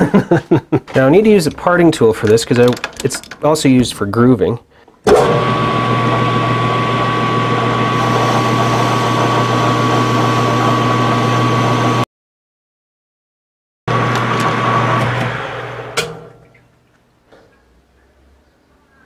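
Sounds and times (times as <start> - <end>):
metal lathe cutting with high whine: 5.2 - 12.0.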